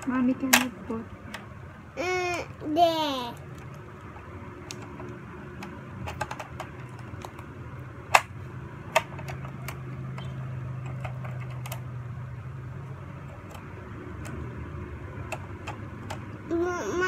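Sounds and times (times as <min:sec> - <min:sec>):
low steady hum: 0:00.0 - 0:17.0
sharp plastic snaps: 0:08.1 - 0:11.9.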